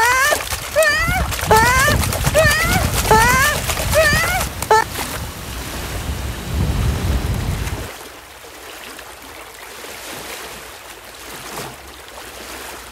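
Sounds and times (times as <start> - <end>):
surf washing on shore: 0.0 - 8.6
waves with low rumble: 0.0 - 12.9.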